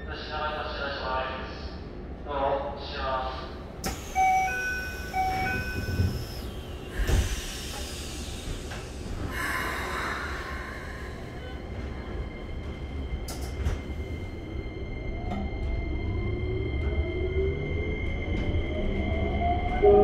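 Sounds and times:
air hiss: 0:06.1 - 0:11.4.

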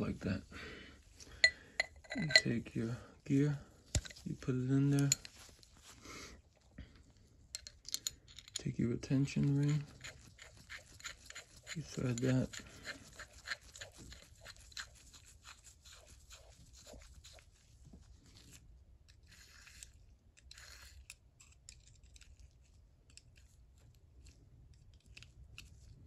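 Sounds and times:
clicks and scrapes of steel parts: 0:01.8 - 0:02.6, 0:03.9 - 0:05.6, 0:07.5 - 0:14.0.

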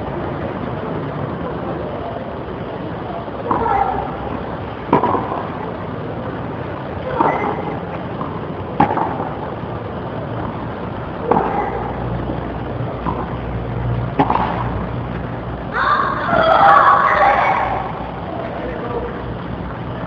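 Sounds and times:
steady background hiss: 0:00.0 - 0:20.0
tennis ball hit by rackets: 0:03.4 - 0:05.6, 0:07.0 - 0:09.5, 0:11.2 - 0:12.0, 0:13.0 - 0:13.4, 0:14.1 - 0:14.8.

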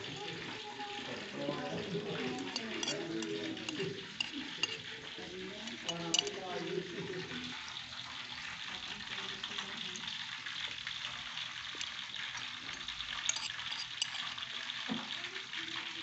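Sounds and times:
food sizzling in a wok: 0:00.0 - 0:16.0
small crackles: 0:07.5 - 0:16.0.

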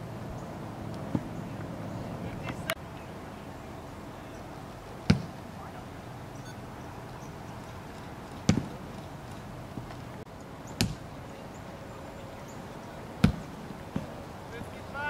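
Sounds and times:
open-air background hiss: 0:00.0 - 0:15.0
boot kicking football: 0:08.4 - 0:08.8.

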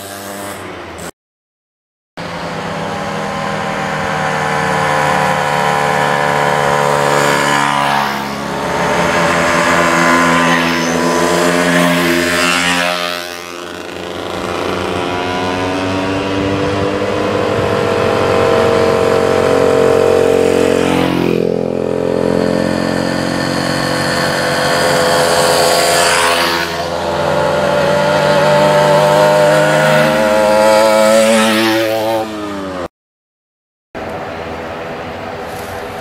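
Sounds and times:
moped engines buzzing past: 0:00.0 - 0:01.1, 0:02.2 - 0:32.9.

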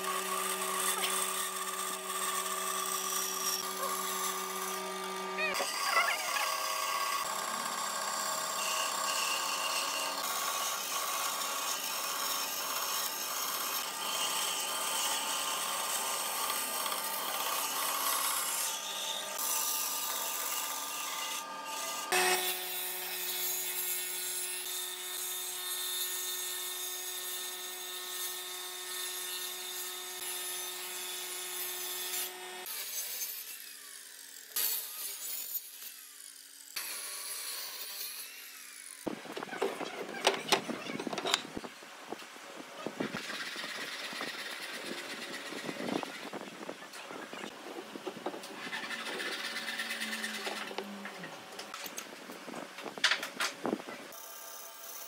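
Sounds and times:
band saw motor hum: 0:00.0 - 0:23.8
saw blade rasping through wood: 0:00.0 - 0:24.7, 0:43.1 - 0:46.4, 0:48.5 - 0:50.8.

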